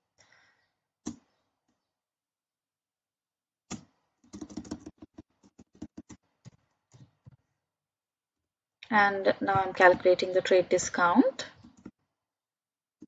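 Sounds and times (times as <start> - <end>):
keyboard typing: 3.7 - 7.4, 11.5 - 12.0.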